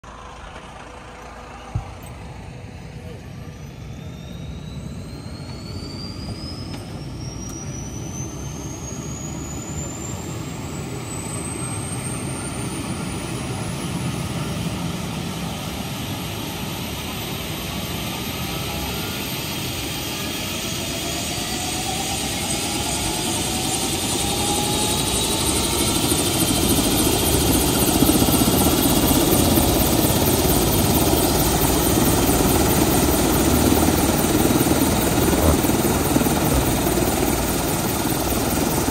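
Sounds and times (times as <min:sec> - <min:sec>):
helicopter turbine whine: 0:00.0 - 0:38.9
rotor blades beating: 0:23.2 - 0:38.9.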